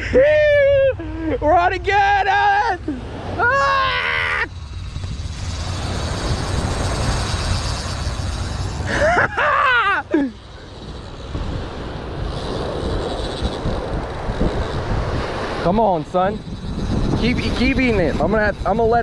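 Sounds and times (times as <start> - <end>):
breaking surf: 2.0 - 19.0
wind buffeting microphone: 4.5 - 19.0.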